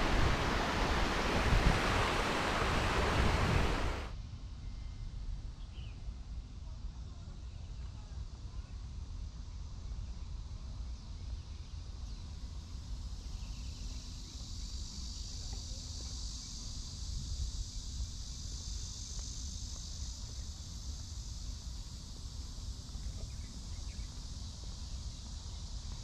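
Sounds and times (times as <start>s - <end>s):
insects droning: 0.0s - 4.1s, 9.6s - 26.0s.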